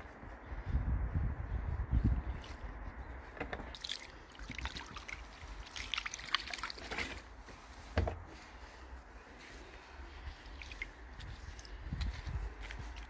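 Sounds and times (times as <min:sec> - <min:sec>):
water trickling and splashing: 0:03.6 - 0:07.3, 0:10.1 - 0:13.0.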